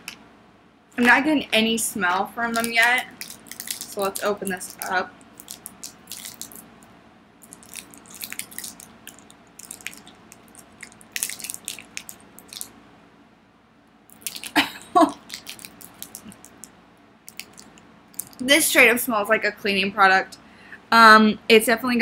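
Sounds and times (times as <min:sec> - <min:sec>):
plastic wrapper crinkling: 0:02.1 - 0:06.7, 0:07.4 - 0:12.7, 0:14.1 - 0:16.7, 0:17.3 - 0:18.5.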